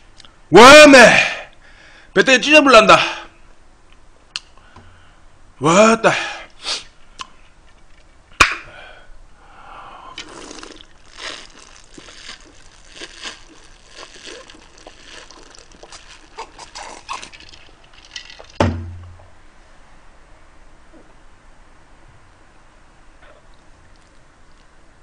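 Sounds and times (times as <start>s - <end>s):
person swallowing: 10.1s - 18.6s
heavy thump: 18.6s - 19.3s.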